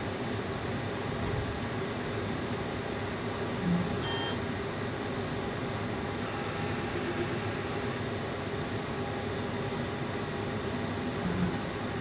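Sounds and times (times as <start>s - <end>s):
short high beep: 4.0s - 4.4s.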